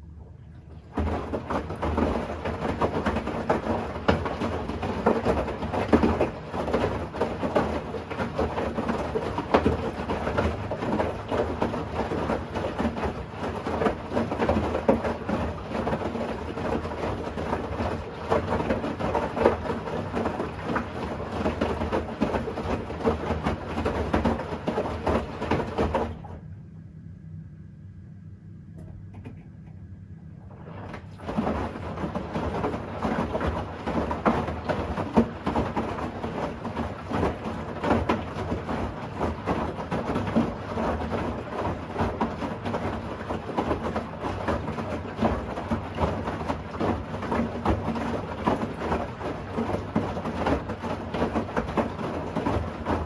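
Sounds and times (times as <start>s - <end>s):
low hum: 0.0s - 2.5s, 26.0s - 32.8s
laundry and water sloshing: 0.0s - 26.5s, 30.4s - 53.0s
washing machine drum turning: 0.7s - 26.4s, 30.4s - 53.0s.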